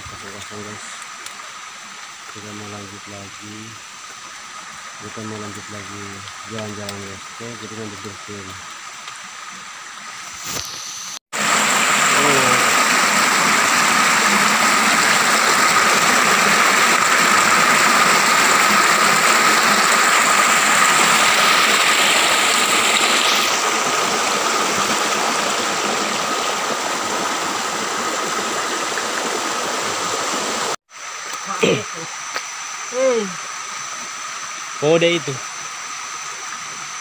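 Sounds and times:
river water rushing over rocks: 11.4 - 30.8
high-pitched whine: 11.7 - 13.8.

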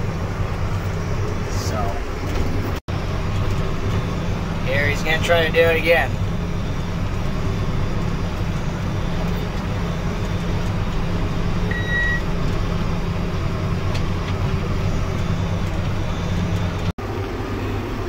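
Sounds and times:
tractor engine running: 0.0 - 18.0
short high beep: 11.7 - 12.2.

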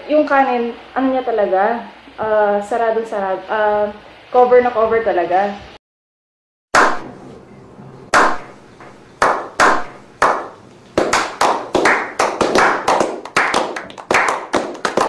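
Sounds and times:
people clapping: 8.2 - 8.4, 9.2 - 15.0
slow hand claps: 8.2 - 8.4, 9.2 - 15.0.

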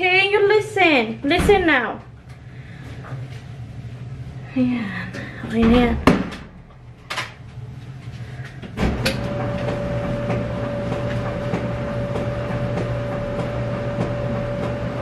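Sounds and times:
machine humming and whining: 6.8 - 15.0.

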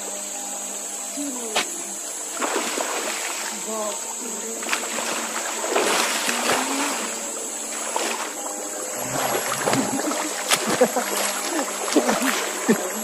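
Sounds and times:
river water splashing: 1.0 - 13.0
high-pitched whine: 8.2 - 10.9.

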